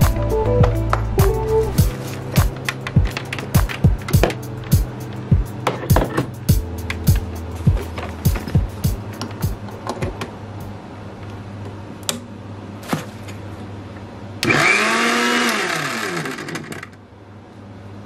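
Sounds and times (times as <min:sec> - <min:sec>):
steady low hum: 0:00.0 - 0:14.4
mixer grinder motor spinning: 0:14.4 - 0:17.0.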